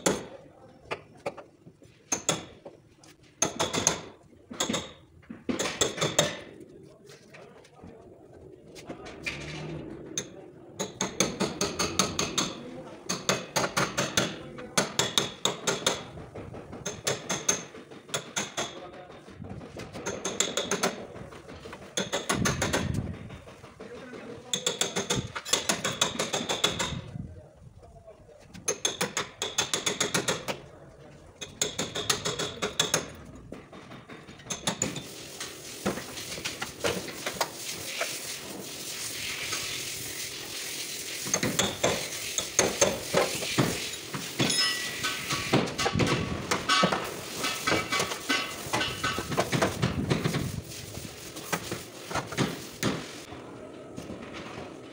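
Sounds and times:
hammer on chisel metal strikes: 10.8 - 16.0
steady hiss: 34.8 - 45.6, 46.6 - 53.3.

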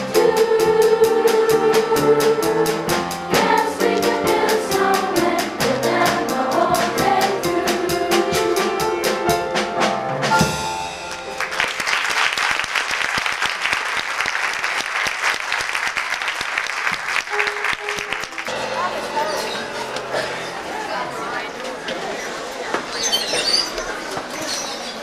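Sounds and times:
children's choir singing: 0.0 - 9.5
steady drum beat: 0.0 - 11.3
audience applause: 11.1 - 18.6.

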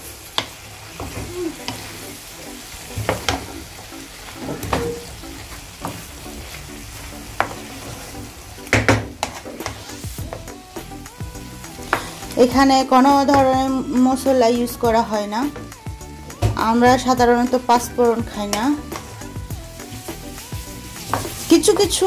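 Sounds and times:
pumpkin sizzling in a frying pan: 0.0 - 22.0
spatula knocking and scraping pan: 2.9 - 3.6, 4.4 - 5.2, 7.4 - 8.1, 8.7 - 10.5, 11.8 - 13.8, 18.2 - 19.2, 20.9 - 22.0.

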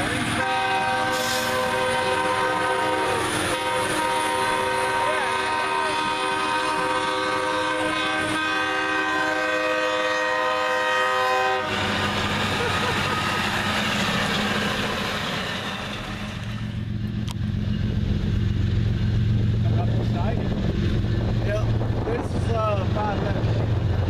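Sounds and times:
rail machine rumbling and clattering: 0.0 - 24.0
horn sounding a steady chord: 0.3 - 11.7.

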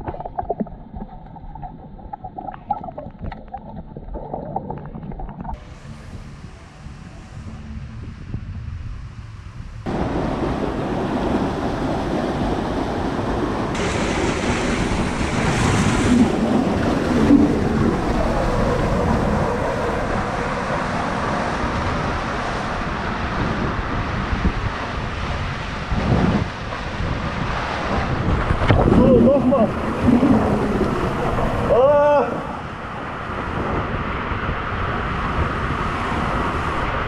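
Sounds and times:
rushing water in a slide tube: 9.8 - 37.0
body sliding down a water slide: 13.8 - 20.2, 25.9 - 32.6.

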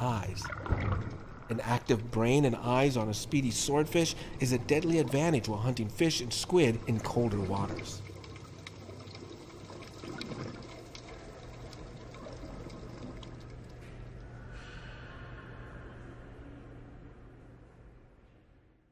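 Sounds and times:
bubbling clicks: 0.0 - 14.3
low steady hum: 0.0 - 18.9.

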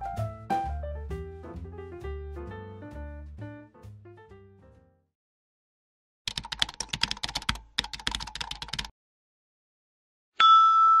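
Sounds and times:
rapid keyboard typing: 6.3 - 8.9
bright bell-like ding: 10.4 - 11.0.

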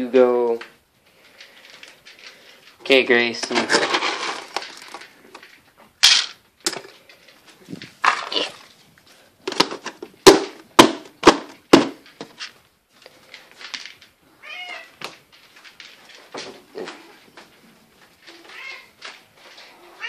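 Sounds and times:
plastic bin clacking: 2.8 - 6.9, 9.4 - 12.6
cat meowing: 14.4 - 15.0, 18.4 - 19.0.

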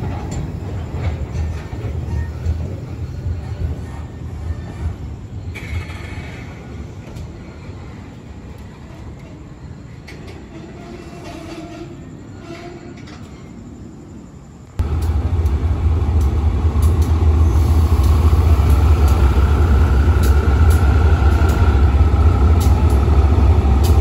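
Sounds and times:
station background: 14.1 - 24.0
diesel locomotive engine rumble: 14.3 - 24.0.

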